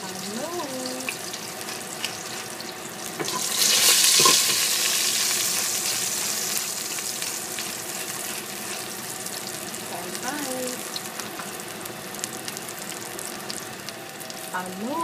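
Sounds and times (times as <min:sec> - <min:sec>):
onion and garlic sizzling in oil: 0:00.0 - 0:15.0.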